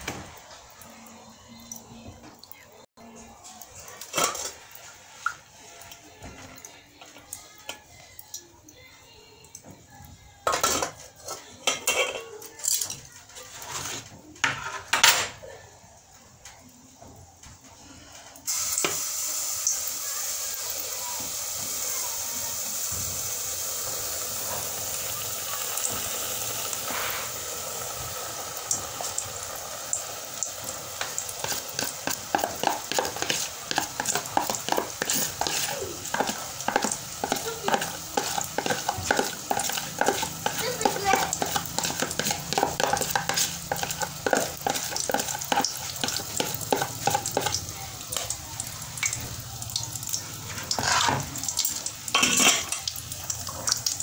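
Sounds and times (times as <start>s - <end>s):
batter sizzling in hot pot: 0.0s - 1.6s, 2.7s - 54.0s
spoon scraping plastic container: 31.4s - 47.6s.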